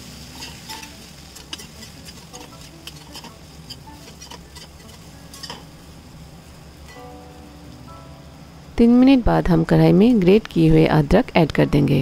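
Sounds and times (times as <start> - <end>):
vegetables sizzling in oil: 0.0 - 11.6
metal spatula scraping pan: 0.2 - 5.8.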